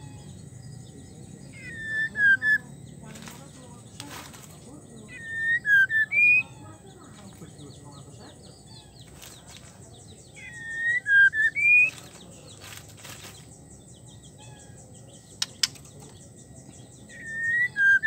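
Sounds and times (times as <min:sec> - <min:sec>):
bird whistled call: 0:05.1 - 0:06.5, 0:10.4 - 0:12.0, 0:17.1 - 0:18.0
sharp clicks: 0:15.4 - 0:16.2.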